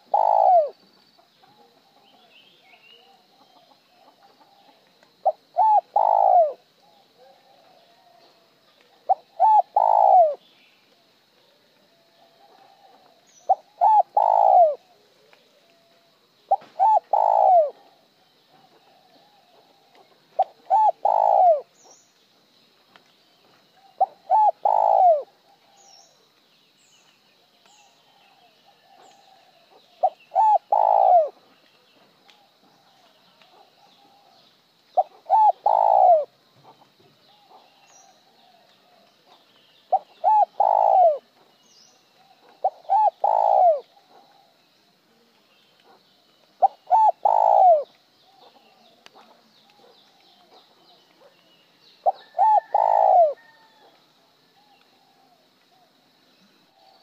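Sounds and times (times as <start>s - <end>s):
dove cooing: 0.0s - 0.8s, 3.0s - 8.4s, 9.0s - 10.4s, 11.9s - 15.9s, 16.5s - 18.0s, 18.6s - 21.7s, 23.8s - 25.8s, 28.1s - 31.4s, 35.0s - 41.3s, 42.2s - 44.5s, 46.6s - 49.9s, 52.0s - 53.9s
small birds chirping: 0.0s - 57.0s.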